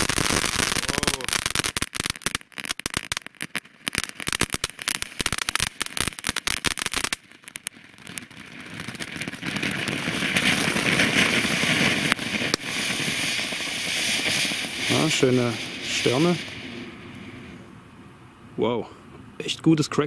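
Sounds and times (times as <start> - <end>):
hissing spray of sparks: 0.0 - 3.2, 9.0 - 16.9
fountain firework crackling pops: 0.0 - 17.6.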